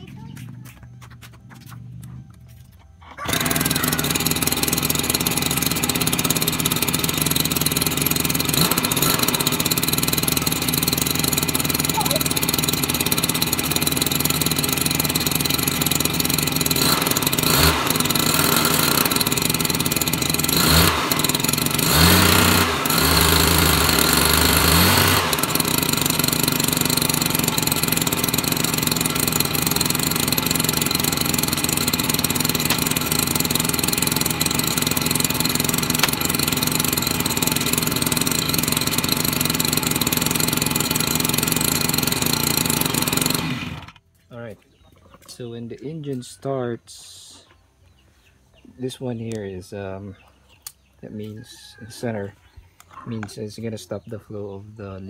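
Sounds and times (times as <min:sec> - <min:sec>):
two-stroke engine revving and idling: 0:01.5 - 0:44.0.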